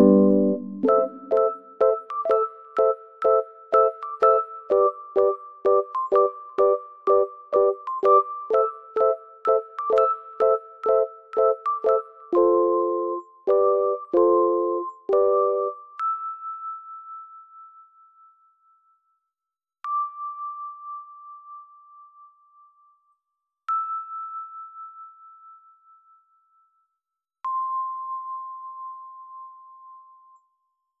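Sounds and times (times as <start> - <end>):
ringing bell-like notes: 0.0 - 2.0.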